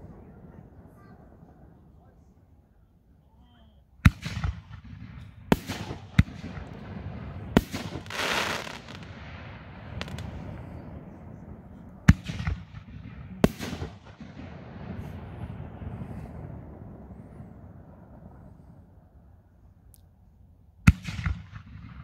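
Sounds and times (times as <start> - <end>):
firework bangs with rumbling echo: 4.0 - 18.5, 20.9 - 22.0
firework hiss: 7.6 - 9.1.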